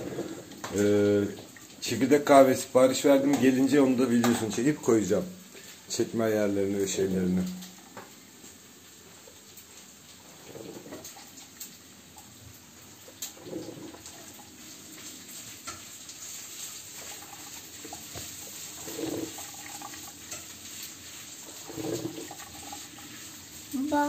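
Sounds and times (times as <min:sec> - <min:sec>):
coffee maker hissing: 0:00.0 - 0:01.4, 0:10.2 - 0:24.0
coffee maker gurgles: 0:00.0 - 0:04.8, 0:06.7 - 0:08.2, 0:09.2 - 0:24.0.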